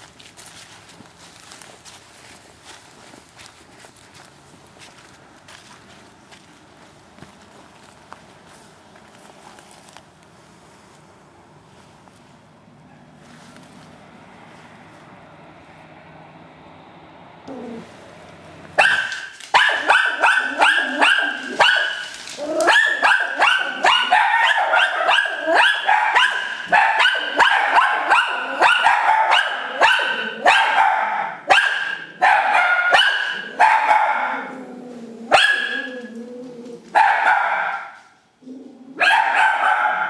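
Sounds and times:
dog barking high-pitched: 18.8s - 34.6s, 35.3s - 36.1s, 36.9s - 38.0s, 39.0s - 40.0s.

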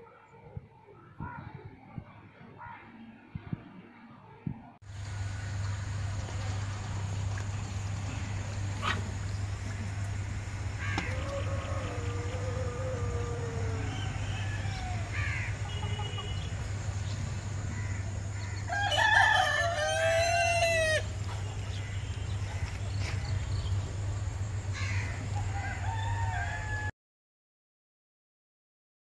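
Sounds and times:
steady low hum: 4.9s - 18.9s
rooster crowing: 10.8s - 16.4s, 18.4s - 21.1s, 24.8s - 26.9s
faint clucking calls: 10.8s - 16.8s.

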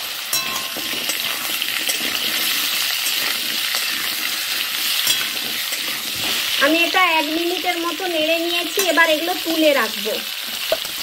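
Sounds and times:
vegetables sizzling in hot oil: 0.0s - 11.0s
metal spatula clinking on pan: 0.3s - 4.0s, 4.9s - 5.9s, 8.7s - 9.0s.

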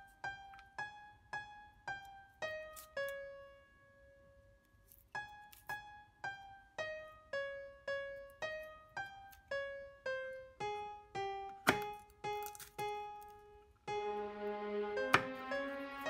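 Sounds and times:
slow piano single notes: 5.2s - 16.0s.

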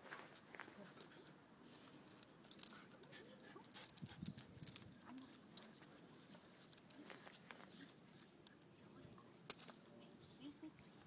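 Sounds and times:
footsteps on paved path: 0.0s - 1.2s, 4.4s - 8.4s.

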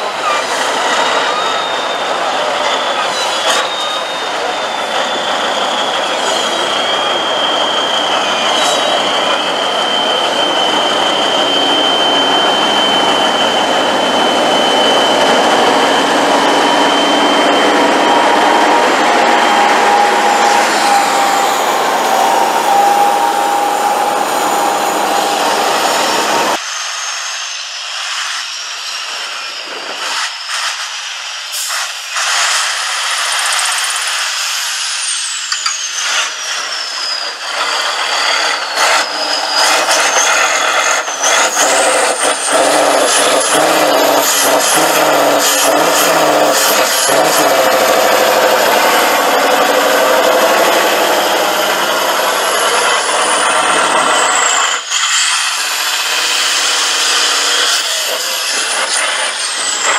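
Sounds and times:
high whistle: 0.0s - 59.9s
diesel truck engine under load: 35.8s - 59.9s.

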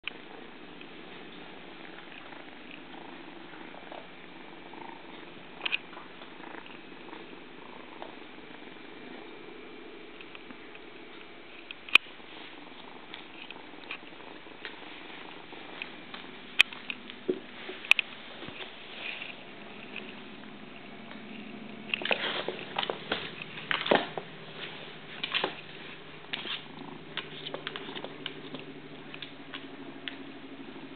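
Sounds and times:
kitten purring: 0.1s - 30.9s
kitten scratching and tapping: 25.2s - 30.3s.

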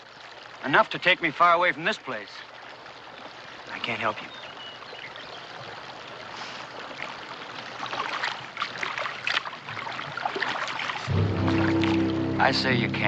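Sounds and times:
running water: 0.0s - 13.0s
footsteps splashing in water: 6.9s - 12.4s.

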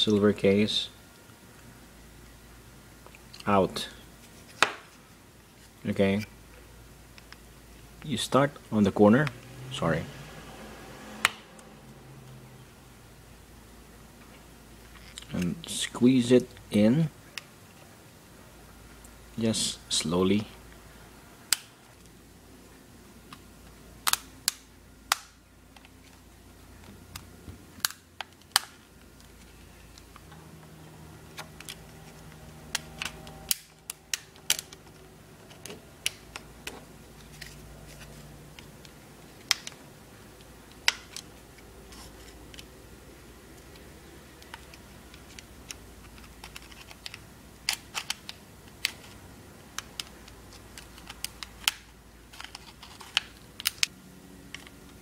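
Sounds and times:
handling of small device: 44.4s - 49.2s, 49.8s - 53.9s.

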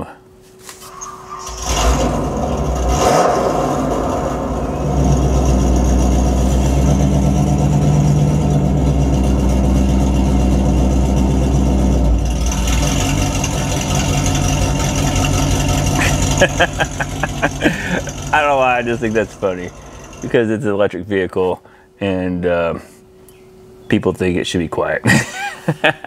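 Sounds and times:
recorded muscle car engine: 1.1s - 20.5s.

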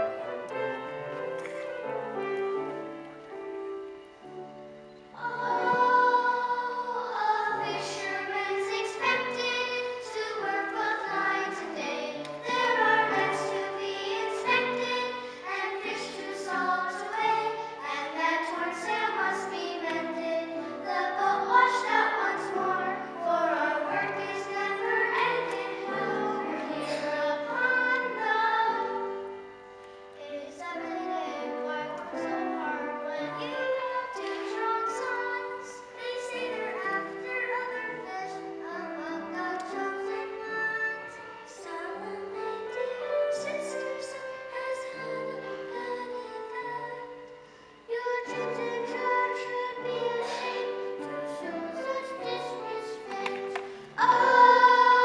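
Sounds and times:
piano accompaniment: 0.0s - 55.0s
children singing: 5.1s - 29.4s, 30.2s - 47.2s, 47.9s - 55.0s.

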